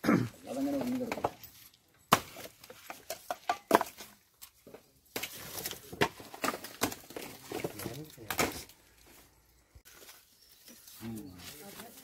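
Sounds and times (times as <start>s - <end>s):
coconut husks knocking and clattering: 0.1s - 9.2s.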